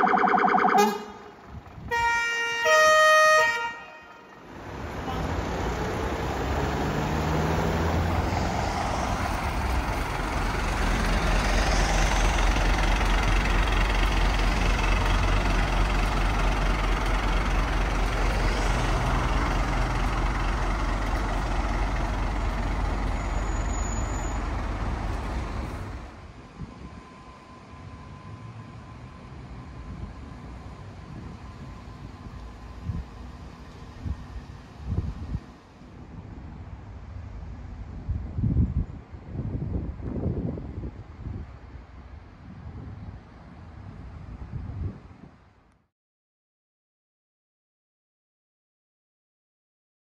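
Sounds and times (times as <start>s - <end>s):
fire engine warning tones: 0.0s - 4.5s
diesel engine rumbling: 0.0s - 38.4s.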